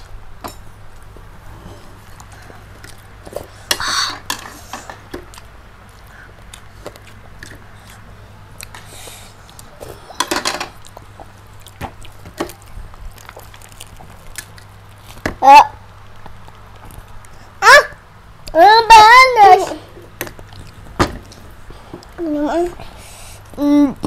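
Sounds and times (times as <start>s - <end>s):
chewing crispy food: 4.9s - 17.5s, 20.4s - 21.0s.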